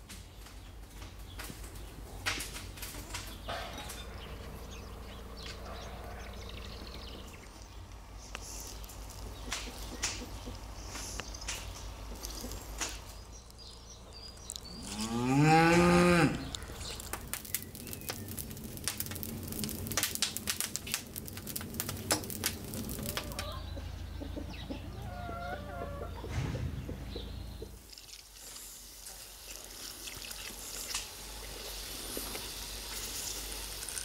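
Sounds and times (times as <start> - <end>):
wood fire crackling and popping: 0.0 - 5.6, 6.7 - 15.0, 15.7 - 23.8
cow mooing: 14.8 - 16.6.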